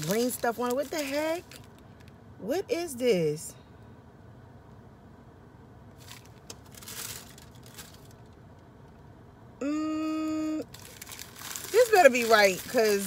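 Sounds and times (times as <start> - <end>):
food wrapper rustling: 0.0 - 1.8, 6.0 - 8.3, 10.6 - 13.0.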